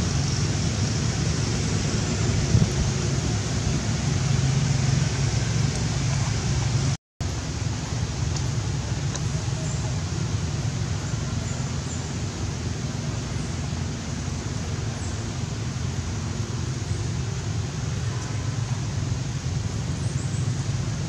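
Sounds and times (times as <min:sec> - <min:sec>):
wind noise on microphone: 0:00.0 - 0:07.0.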